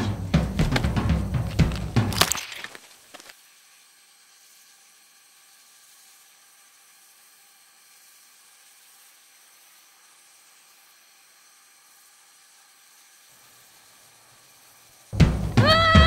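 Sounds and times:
drum-driven music: 0.0 - 2.2, 15.2 - 16.0
faint steady hiss: 0.0 - 16.0.

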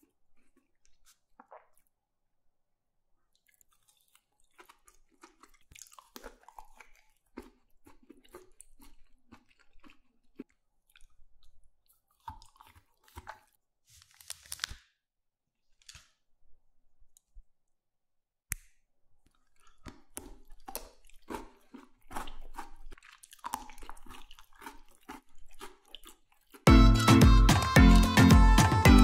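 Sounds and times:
chocolate chewing and crunching: 0.0 - 2.0, 3.2 - 13.6, 19.2 - 26.7.

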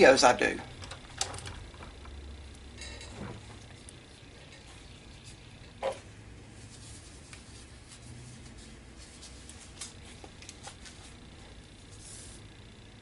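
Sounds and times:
low steady hum: 0.0 - 13.0
dust mask rustling and clicking: 6.6 - 12.4.

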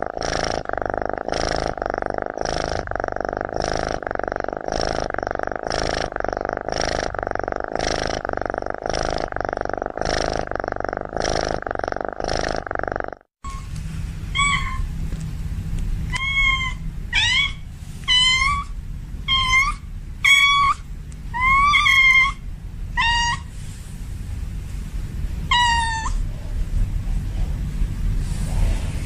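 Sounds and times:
cat meowing: 14.3 - 14.9, 16.1 - 18.7, 19.3 - 22.4, 23.0 - 23.5, 25.5 - 26.2.

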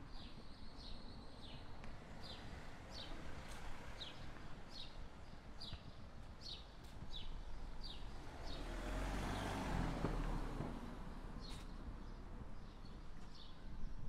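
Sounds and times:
vehicle passing: 7.8 - 11.5.

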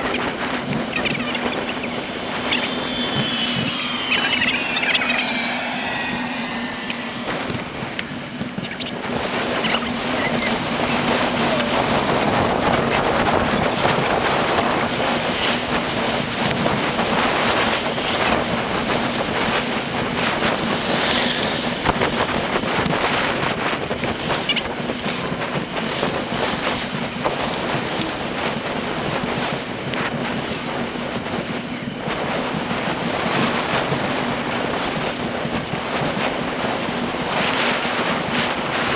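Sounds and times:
wind buffeting microphone: 0.0 - 38.9.

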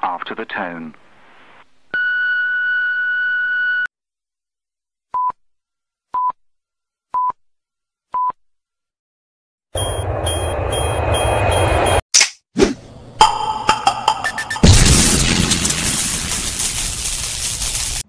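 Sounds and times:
short low beeps: 14.2 - 14.6
voicemail beep tone: 14.2 - 14.6
static hiss: 15.2 - 18.0.

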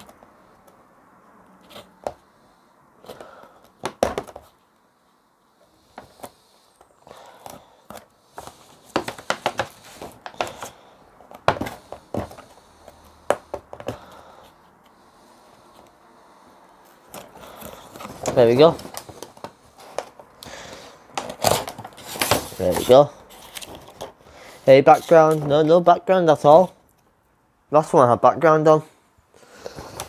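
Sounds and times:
tape tearing: 7.3 - 10.8, 17.0 - 24.2.

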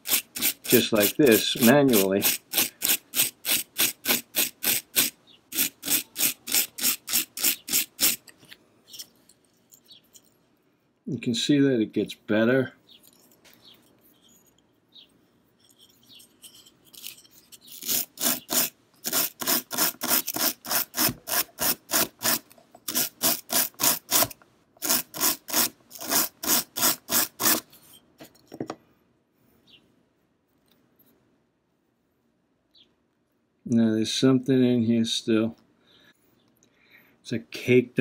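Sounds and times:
wire brush scrubbing steel: 0.0 - 8.3, 15.6 - 28.0.

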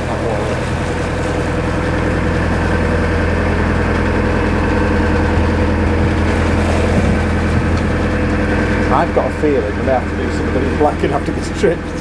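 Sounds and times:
boat diesel engine droning: 0.0 - 12.0.

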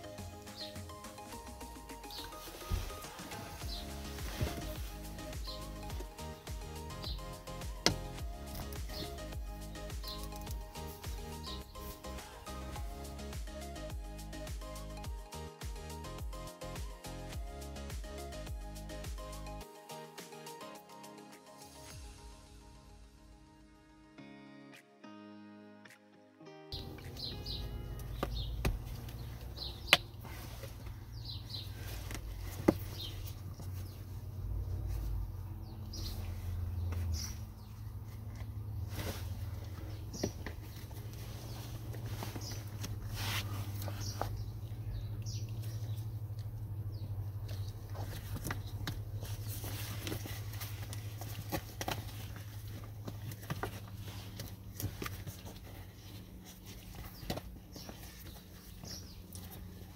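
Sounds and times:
birds chirping: 0.0 - 20.8, 26.7 - 59.9
leather cover rustling: 2.0 - 7.2, 27.0 - 44.6, 47.5 - 59.9.

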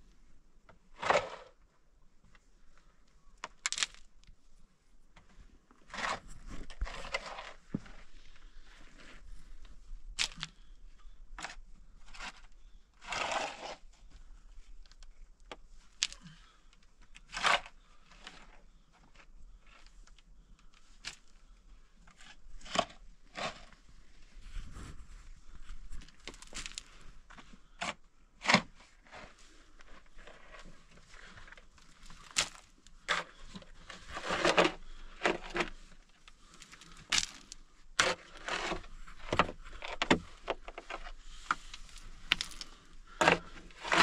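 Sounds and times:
dirt and stones rattling: 3.4 - 4.2, 5.9 - 13.9, 24.8 - 44.0.

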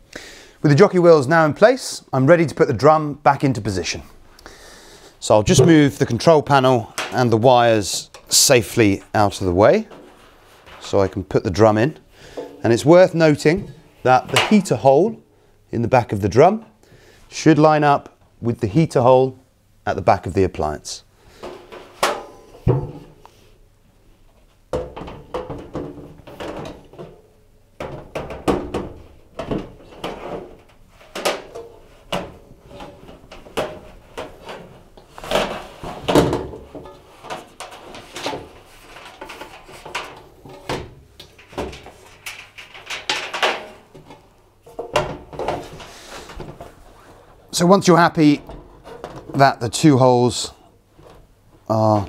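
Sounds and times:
metal drum clunking and scraping: 5.4 - 6.4, 21.4 - 23.4, 27.8 - 47.0, 48.2 - 49.6.

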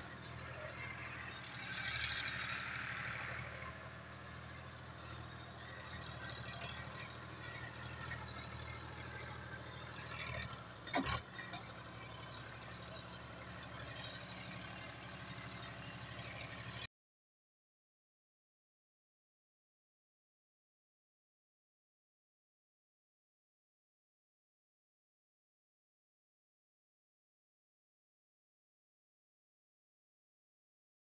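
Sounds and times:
diesel tractor engine running: 0.0 - 16.9.

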